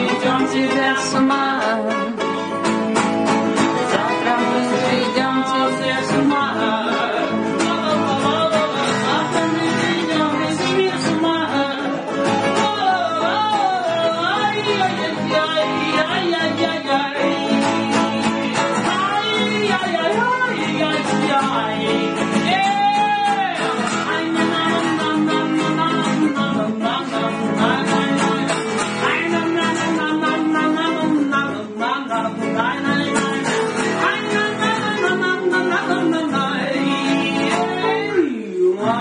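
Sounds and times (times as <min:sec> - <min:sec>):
guitar accompaniment: 0:00.0 - 0:39.0
person singing: 0:00.0 - 0:39.0.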